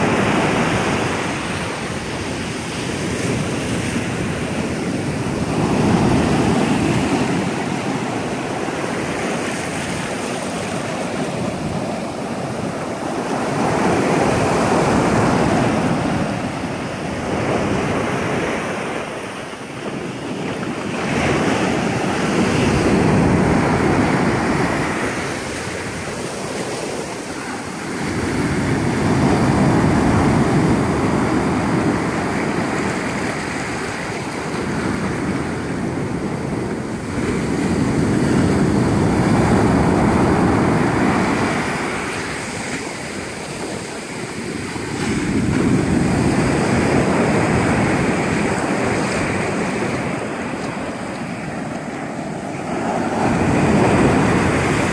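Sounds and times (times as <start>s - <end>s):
ocean surf on beach: 0.0s - 54.9s.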